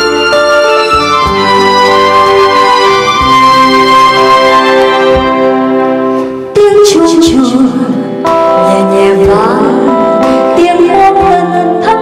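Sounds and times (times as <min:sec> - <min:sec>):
live band playing: 0:00.0 - 0:12.0
woman singing into a microphone: 0:06.5 - 0:12.0.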